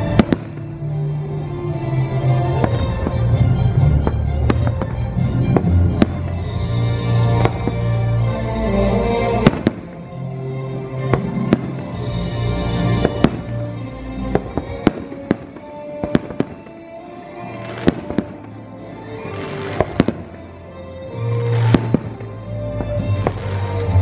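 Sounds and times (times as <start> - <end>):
fireworks bangs: 0.0 - 1.0, 2.5 - 6.7, 7.3 - 8.0, 9.4 - 10.1, 11.0 - 12.2, 13.0 - 18.6, 19.2 - 24.0
music soundtrack: 0.0 - 24.0.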